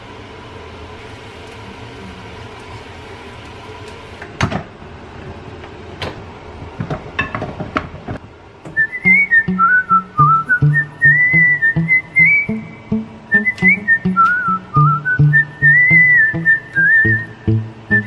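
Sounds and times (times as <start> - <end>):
whistled melody: 8.8 - 18.0
plucked bass: 9.1 - 18.0.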